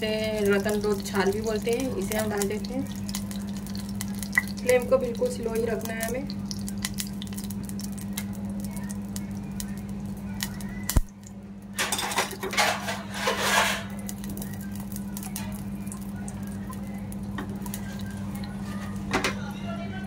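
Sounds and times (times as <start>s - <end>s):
steady low hum: 0.0s - 20.0s
tongs scraping on metal pan: 11.8s - 14.2s.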